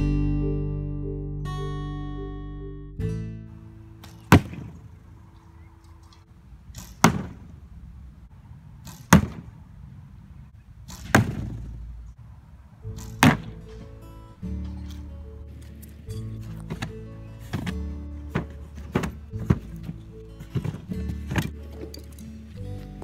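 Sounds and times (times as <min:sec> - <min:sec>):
arrows striking cardboard target: 0:04.0 - 0:04.9, 0:06.8 - 0:07.6, 0:08.8 - 0:09.5, 0:10.8 - 0:11.8, 0:13.0 - 0:13.9, 0:16.5 - 0:22.2.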